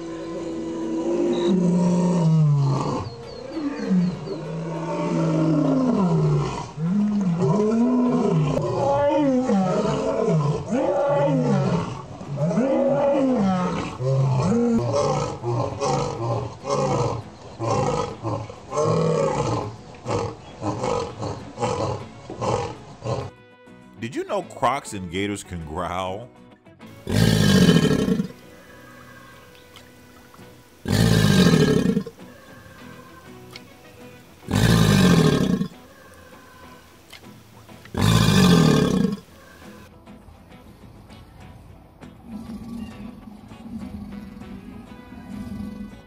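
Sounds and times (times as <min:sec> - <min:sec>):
lion roaring: 0:00.0 - 0:23.3, 0:27.0 - 0:28.4, 0:30.8 - 0:32.1, 0:34.5 - 0:35.8, 0:37.9 - 0:39.3, 0:42.2 - 0:46.0.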